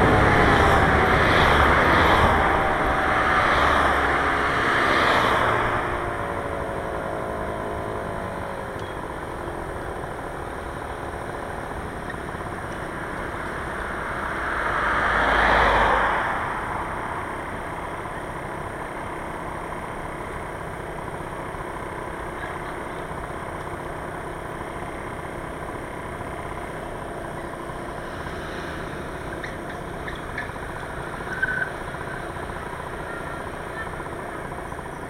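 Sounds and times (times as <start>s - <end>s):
car passing: 0.0s - 7.9s, 12.3s - 19.5s, 27.6s - 32.7s
street noise: 0.0s - 35.0s.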